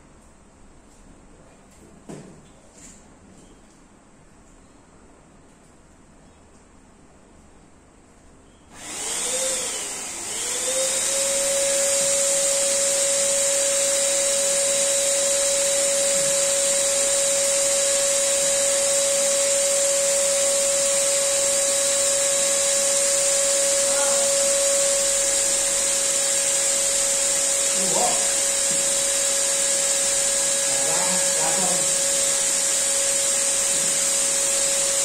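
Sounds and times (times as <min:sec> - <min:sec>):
electric air pump hissing: 0:08.7 - 0:35.0.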